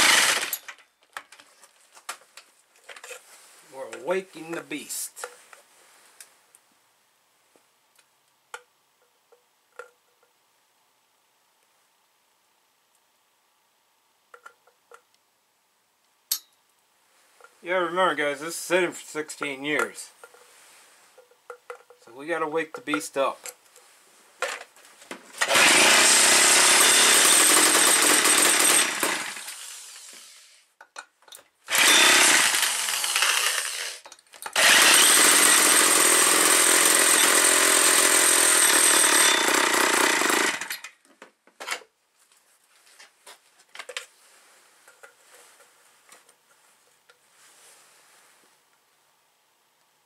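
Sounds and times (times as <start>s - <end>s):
chainsaw running loud: 0.0s - 0.5s, 25.4s - 30.1s, 31.7s - 34.0s, 34.6s - 40.8s
faint clicks and handling noise: 0.6s - 4.2s, 41.0s - 48.9s.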